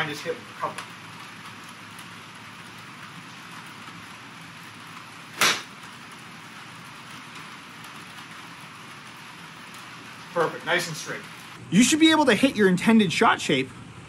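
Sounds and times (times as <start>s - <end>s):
steady rain hiss: 0.0s - 13.6s
golf club striking ball: 5.4s - 5.7s.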